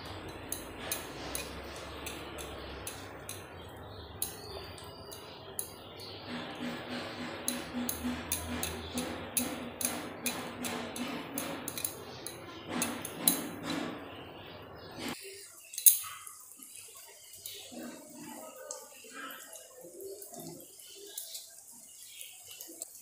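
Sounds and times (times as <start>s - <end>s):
spatula clinking on pan: 0.0s - 13.8s.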